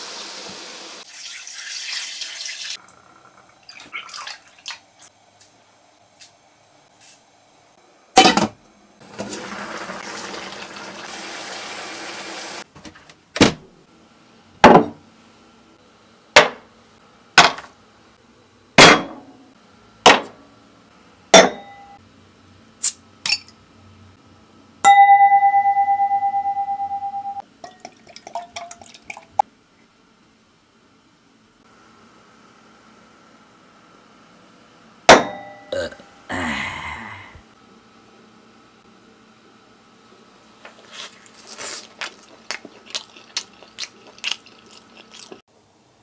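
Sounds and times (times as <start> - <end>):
ringing tone: 21.6 - 22.0, 24.9 - 27.4
beer pouring into a glass: 27.6 - 29.4.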